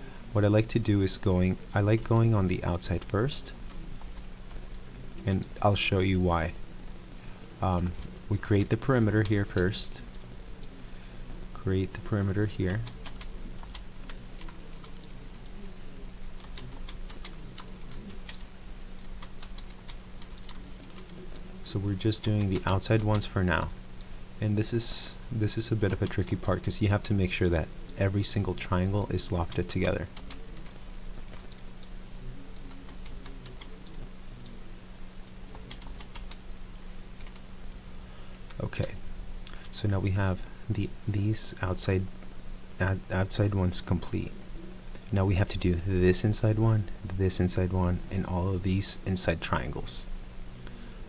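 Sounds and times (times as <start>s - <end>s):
low steady hum: 0.0s - 51.0s
keyboard and mouse clicking: 12.7s - 15.2s, 16.3s - 21.2s, 29.5s - 31.6s, 32.6s - 34.0s, 35.3s - 36.4s
computer mouse clicks: 32.6s - 34.0s, 35.2s - 36.4s.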